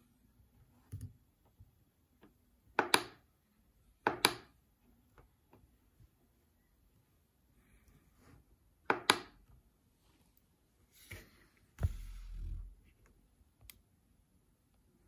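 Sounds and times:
thump: 11.8s - 12.6s.

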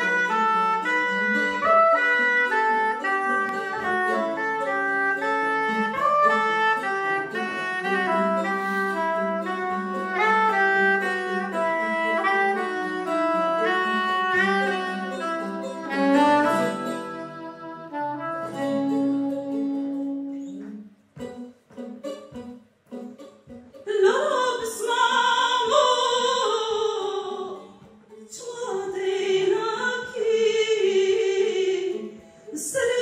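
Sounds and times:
soprano saxophone melody: 0.0s - 23.2s
saz accompaniment: 0.0s - 28.2s.

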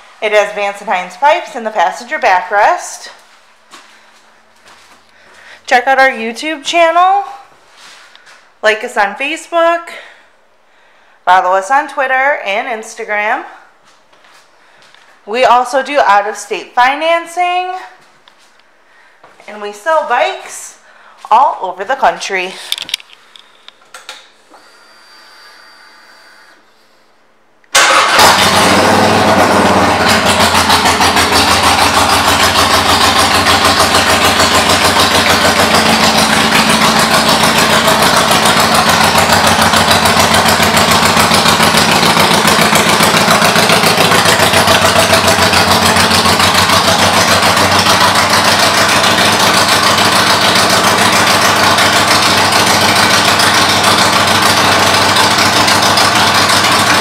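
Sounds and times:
motorcycle engine idling: 27.9s - 57.0s.

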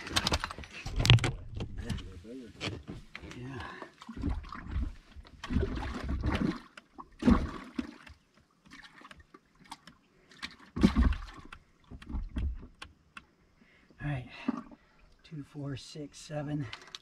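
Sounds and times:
water sloshing and splashing: 0.0s - 1.6s, 2.8s - 13.1s, 14.2s - 15.3s, 16.5s - 17.0s.

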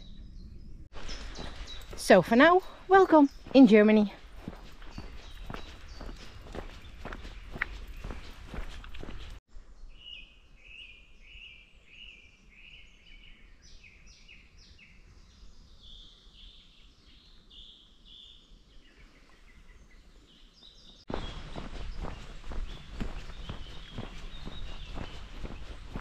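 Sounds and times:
songbird singing: 0.0s - 26.0s
footsteps on a path: 0.9s - 9.4s, 21.1s - 26.0s.

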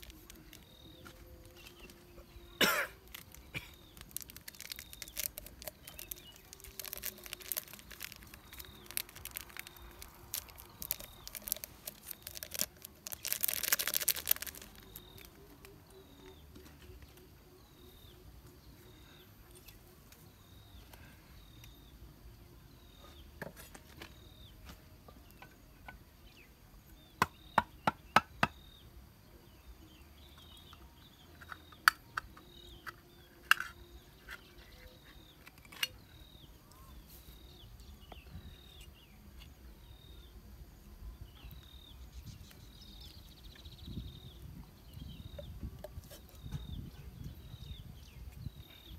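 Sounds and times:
plastic packet being torn open: 0.0s - 0.7s, 3.0s - 15.8s
birds chirping: 0.0s - 40.5s.

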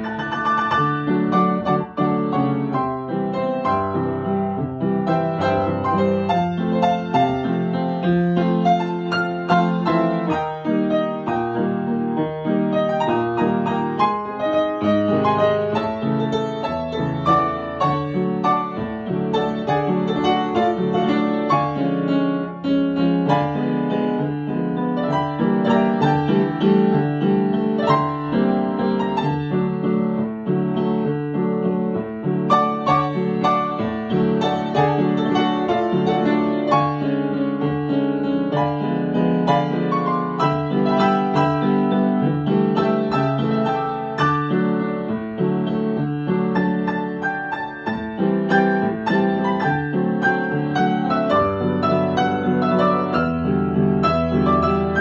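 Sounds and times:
solo piano waltz: 0.0s - 55.0s.

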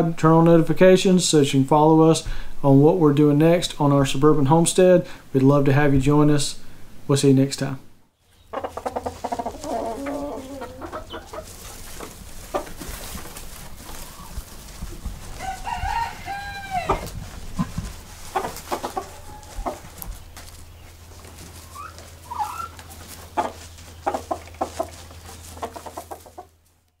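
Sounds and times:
chickens clucking: 8.3s - 26.7s
rooster crowing: 15.4s - 17.1s, 18.9s - 20.0s.

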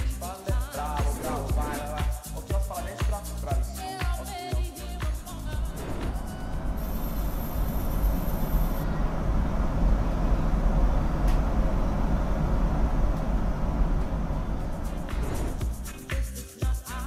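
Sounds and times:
heavy low rumble: 1.0s - 2.0s, 5.1s - 16.1s
cars and scooters passing: 5.4s - 10.6s, 12.5s - 15.9s.

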